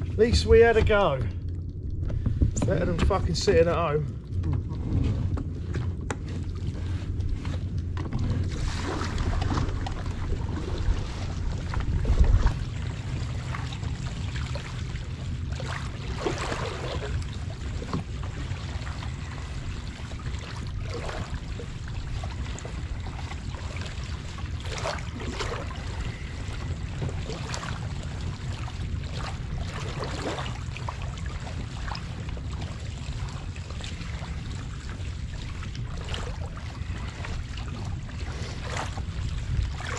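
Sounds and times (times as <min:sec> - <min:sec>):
water lapping against kayak hull: 0:00.0 - 0:39.9
wind rumble on microphone: 0:00.0 - 0:39.9.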